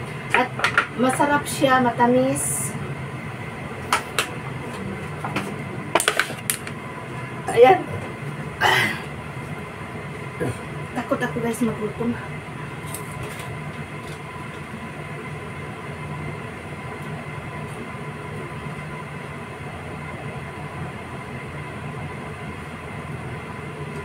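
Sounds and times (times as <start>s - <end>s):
fan humming with whoosh: 0.0s - 24.0s.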